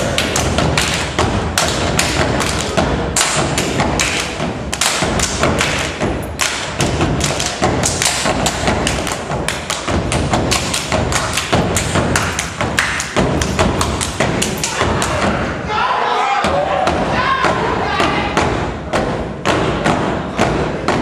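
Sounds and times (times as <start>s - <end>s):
feet stomping on stage floor: 0.0s - 15.5s
rhythmic clapping: 0.0s - 15.5s, 16.8s - 21.0s.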